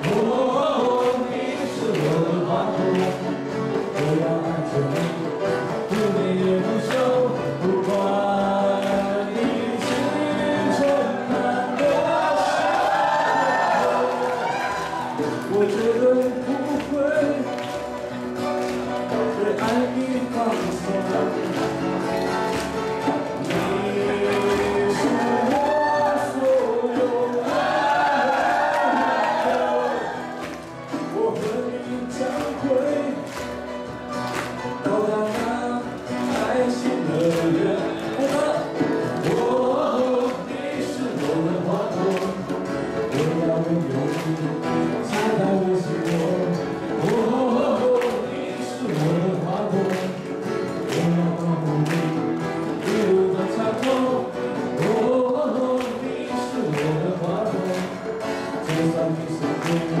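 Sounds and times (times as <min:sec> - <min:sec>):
acoustic guitar: 0:00.0 - 1:00.0
person singing: 0:00.0 - 1:00.0
piano: 0:00.0 - 1:00.0.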